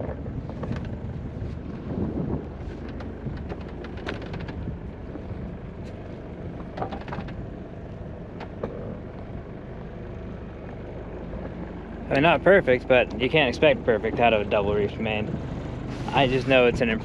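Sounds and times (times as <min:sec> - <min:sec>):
wind on microphone: 0:00.0 - 0:09.6
steady low hum: 0:00.0 - 0:17.0
light clicks and knocks: 0:02.6 - 0:07.4.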